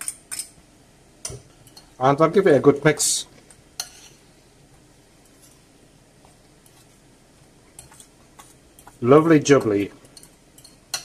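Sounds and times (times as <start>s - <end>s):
fork stirring in glass bowl: 3.8s - 4.2s, 5.2s - 7.0s, 7.7s - 11.0s.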